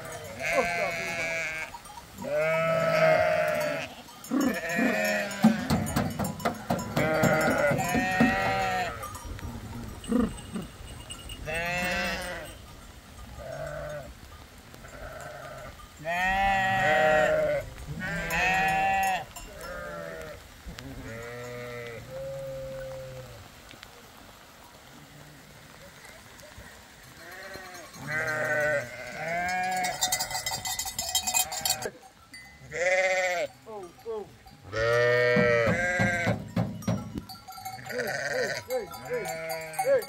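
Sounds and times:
sheep and goats bleating: 0.0s - 23.5s, 24.9s - 40.0s
animals jostling clicks and knocks: 4.2s - 12.6s, 25.7s - 32.5s, 35.2s - 40.0s.

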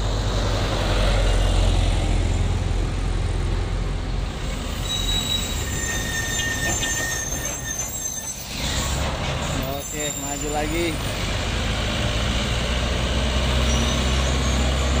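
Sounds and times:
truck engines rumbling: 0.0s - 15.0s
truck brakes squealing: 4.4s - 15.0s.

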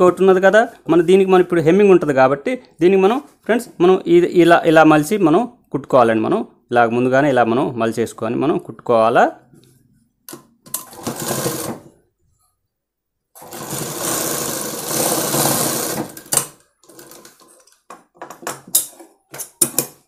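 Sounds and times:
sewing machine running: 10.8s - 11.8s, 13.4s - 17.4s.

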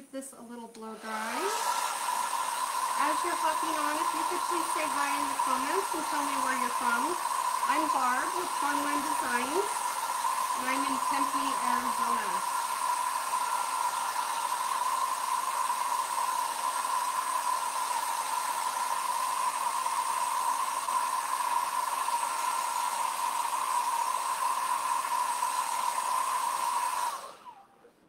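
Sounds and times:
blow dryer running: 0.7s - 28.0s.

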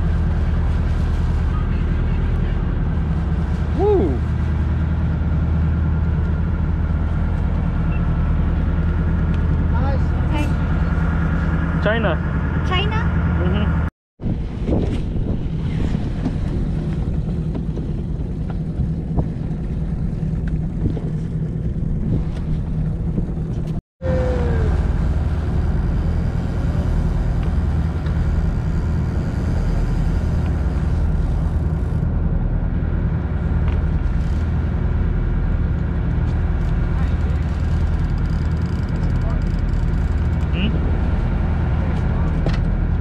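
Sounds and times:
boat engine droning: 0.0s - 43.0s
wind: 0.0s - 43.0s
water noise: 14.3s - 43.0s.

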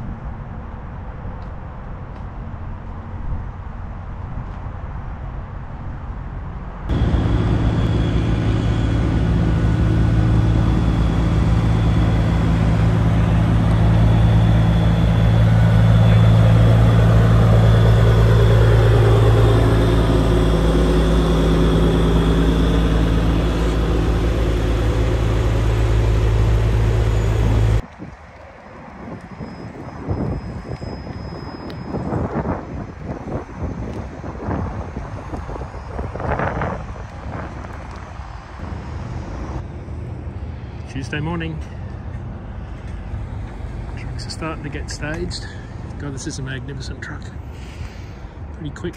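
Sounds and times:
diesel truck engine idling: 6.9s - 27.8s, 37.8s - 48.9s.

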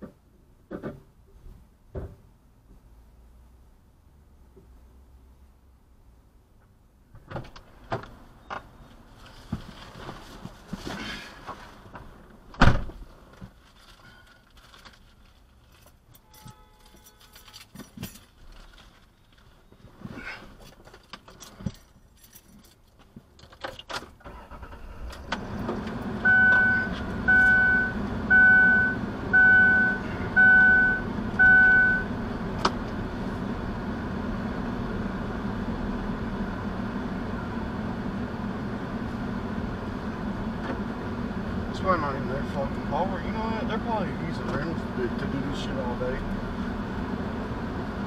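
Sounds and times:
keys clicking and rustling: 14.4s - 19.4s, 20.6s - 23.9s
car engine running: 25.2s - 48.0s
dashboard warning chime beeping: 26.2s - 32.1s.

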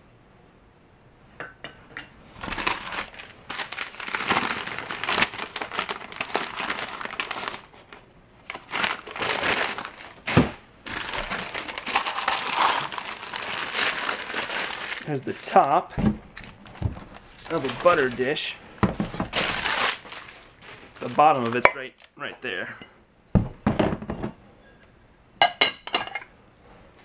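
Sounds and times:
newspaper crinkling and rustling: 2.4s - 22.4s.

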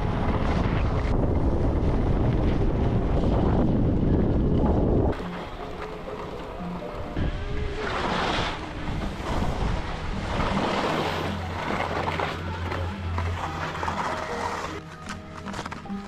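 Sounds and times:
wind buffeting microphone: 0.0s - 11.9s
skis scraping over snow: 7.7s - 16.0s.

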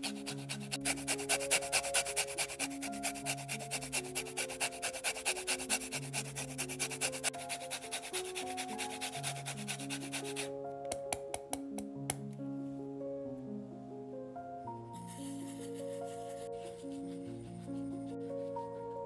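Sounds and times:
peel rasping on a metal grater: 0.0s - 10.5s
soft background music: 0.0s - 19.0s.

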